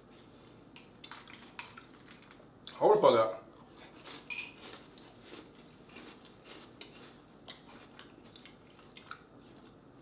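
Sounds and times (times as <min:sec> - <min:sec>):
person chewing crunchy cereal: 0:03.6 - 0:09.9.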